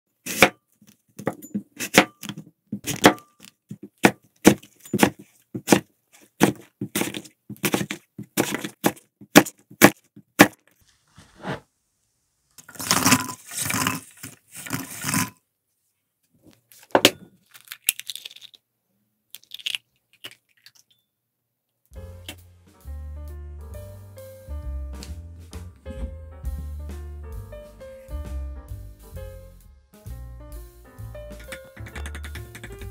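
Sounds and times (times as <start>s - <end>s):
eggs cracking into bowl: 17.0s - 18.6s, 19.3s - 20.9s, 31.4s - 32.9s
knife knocking on wooden board: 31.4s - 32.9s.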